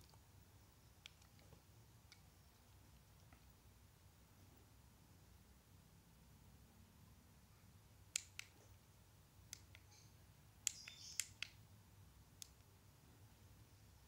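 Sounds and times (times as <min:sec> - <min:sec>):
faint low hum: 0:00.0 - 0:14.0
computer clicks: 0:09.5 - 0:11.6.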